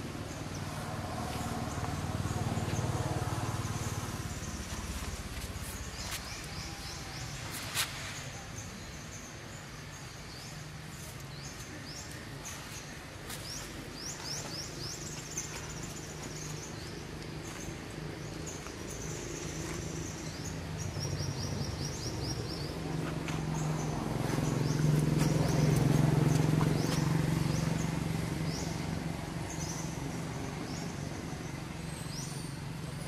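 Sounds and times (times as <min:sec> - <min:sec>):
birds chirping: 0:08.2 - 0:33.0.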